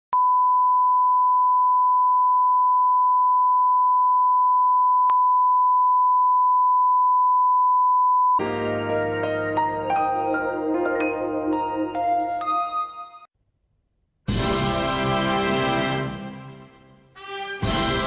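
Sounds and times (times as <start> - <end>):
music: 8.4 - 13.3, 14.3 - 18.0.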